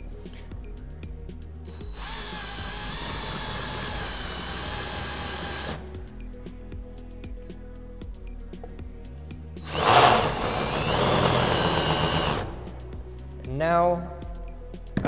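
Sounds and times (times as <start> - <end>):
cordless drill cutting plastic: 1.8 - 5.8, 9.7 - 12.6.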